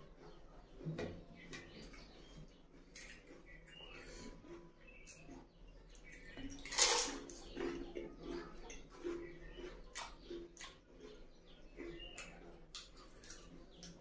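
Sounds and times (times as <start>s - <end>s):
wet chewing: 0.0s - 14.0s
wet crunch: 5.9s - 7.8s, 8.4s - 14.0s.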